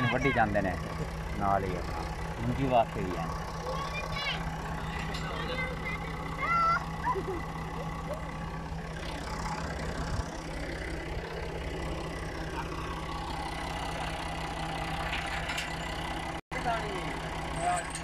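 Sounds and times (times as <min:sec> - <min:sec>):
tractor diesel engine idling: 0:00.0 - 0:18.0.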